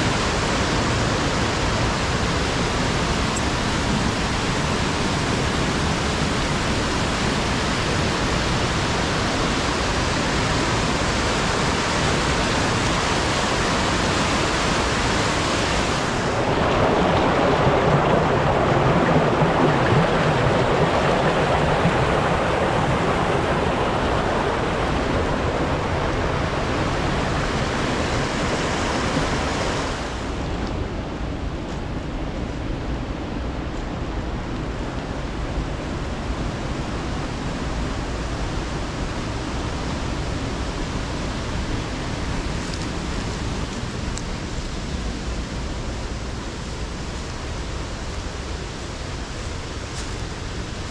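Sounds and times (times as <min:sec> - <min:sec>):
stream rushing over rocks: 0:00.0 - 0:50.9.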